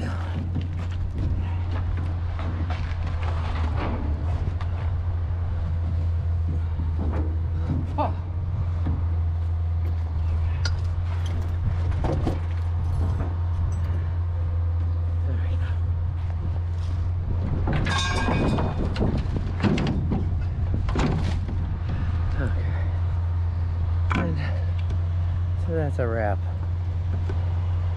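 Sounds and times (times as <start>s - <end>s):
vehicle engine idling: 0.0s - 27.9s
short knocks and clinks: 17.7s - 20.4s.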